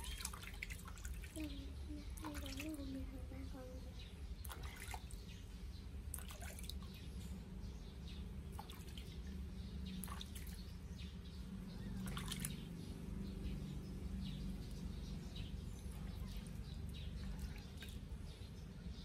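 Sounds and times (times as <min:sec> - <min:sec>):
water dripping and splashing in basin: 0:00.0 - 0:03.3, 0:04.4 - 0:05.4, 0:06.0 - 0:07.1, 0:08.4 - 0:10.8, 0:12.0 - 0:13.7, 0:14.5 - 0:18.3
steady low hum: 0:00.0 - 0:19.0.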